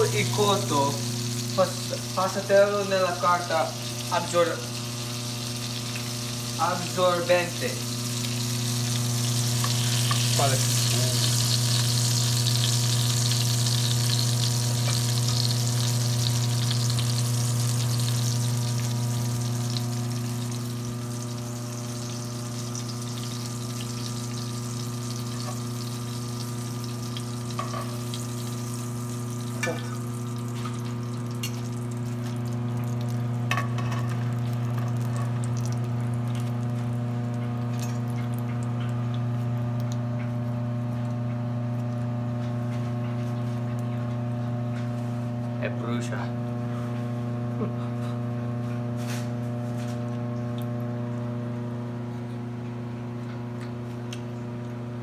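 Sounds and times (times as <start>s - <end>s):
food sizzling in oil: 0.0s - 36.7s
steady low hum: 0.0s - 55.0s.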